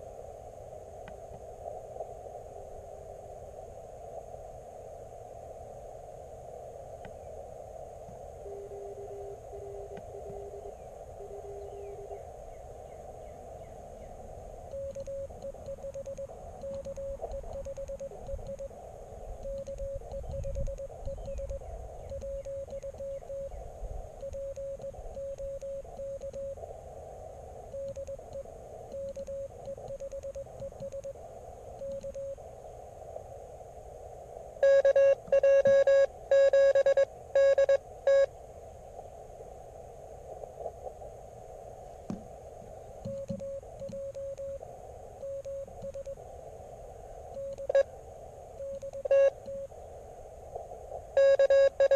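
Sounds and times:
radio hiss: 0:00.0 - 0:51.9
morse code tones: 0:08.4 - 0:12.2, 0:14.7 - 0:18.7, 0:19.4 - 0:23.6, 0:24.2 - 0:26.6, 0:27.7 - 0:31.2, 0:31.8 - 0:32.4, 0:34.6 - 0:38.3, 0:43.1 - 0:44.6, 0:45.2 - 0:46.2, 0:47.4 - 0:47.9, 0:48.6 - 0:49.7, 0:51.2 - 0:51.9.

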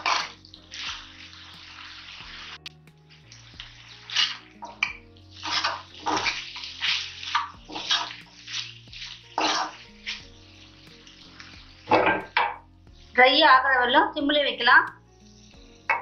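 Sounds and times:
masala sizzling: 0:00.0 - 0:16.0
soft background music: 0:00.0 - 0:16.0
spatula scraping a pan: 0:03.2 - 0:12.6.

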